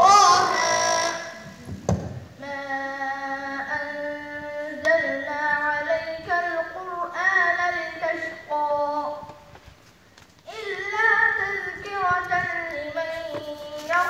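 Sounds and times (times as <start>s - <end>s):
young person chanting melodically: 0.0s - 1.7s, 2.4s - 9.3s.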